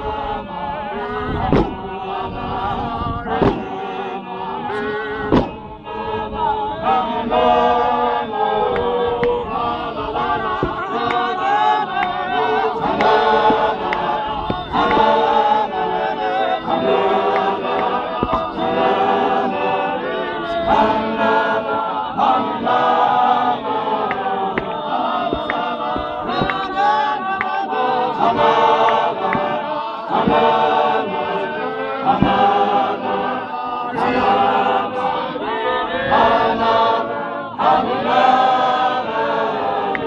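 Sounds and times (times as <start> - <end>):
men singing hymn a cappella: 0.0 - 40.0
faint thuds: 1.4 - 1.9, 3.3 - 3.9, 4.7 - 5.7, 10.2 - 15.5, 16.6 - 19.0, 24.0 - 27.6, 28.3 - 29.6, 30.2 - 30.8, 32.1 - 32.7
sharp thump: 1.4 - 1.9, 3.3 - 3.9, 5.3 - 5.7, 10.4 - 11.3, 12.9 - 15.3, 16.9 - 18.8, 24.0 - 27.6, 30.2 - 30.6, 32.1 - 32.6.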